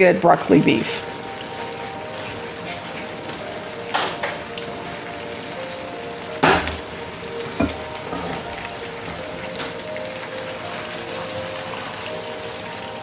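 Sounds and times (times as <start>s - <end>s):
background music: 0.0s - 13.0s
utensils clattering against bowl: 7.5s - 8.6s.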